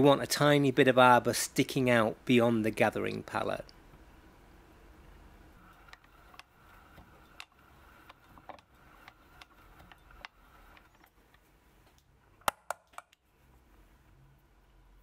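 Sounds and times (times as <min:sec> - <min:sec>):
hand tool clicking on wire: 0:05.8 - 0:13.2.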